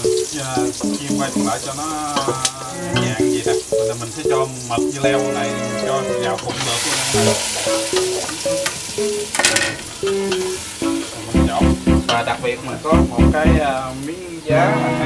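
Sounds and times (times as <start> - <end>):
melody playing: 0.0 - 1.7, 3.0 - 6.4, 7.2 - 9.4, 10.0 - 12.2, 12.9 - 13.7
food sizzling in hot oil: 0.0 - 11.4.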